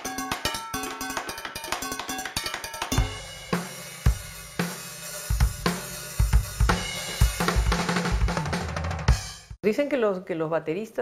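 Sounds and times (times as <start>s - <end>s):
drum kit playing a groove: 0.0s - 9.6s.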